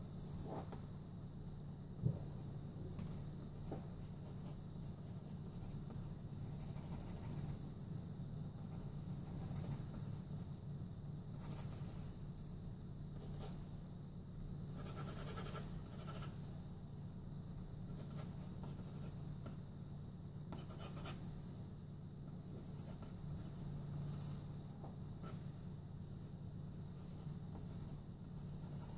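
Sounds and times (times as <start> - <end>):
pencil scratching on paper: 3.7 - 7.6, 8.6 - 10.5, 11.3 - 12.2, 14.7 - 16.4, 17.9 - 19.2, 20.5 - 21.2, 22.3 - 24.5, 26.9 - 28.9.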